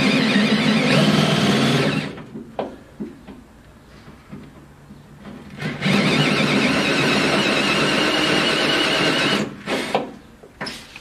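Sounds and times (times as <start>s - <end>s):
cordless drill cutting steel: 0.0s - 2.1s.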